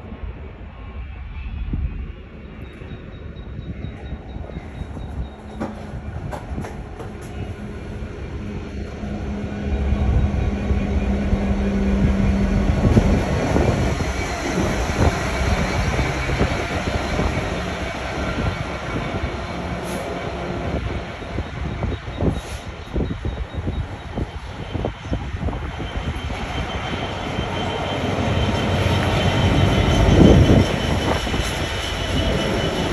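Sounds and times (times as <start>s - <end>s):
diesel locomotive passing: 0.0s - 32.9s.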